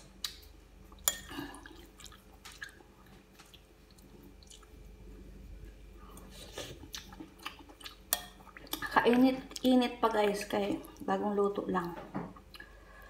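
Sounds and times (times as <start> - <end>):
steady low hum: 0.0 - 13.0
eating sounds: 0.2 - 5.0, 6.1 - 9.7.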